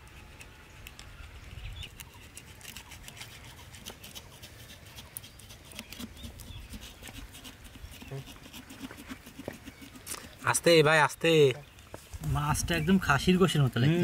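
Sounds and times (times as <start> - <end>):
knife scraping fish scales: 0.0 - 10.7.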